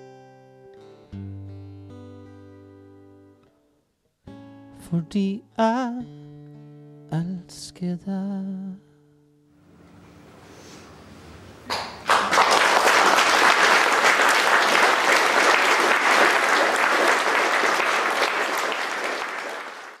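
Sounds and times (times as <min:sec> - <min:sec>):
audience applauding: 0:11.7 - 0:20.0.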